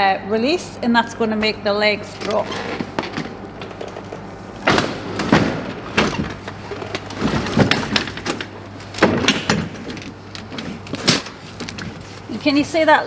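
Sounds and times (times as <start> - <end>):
metal stretcher clanking and rattling: 2.2 - 12.0.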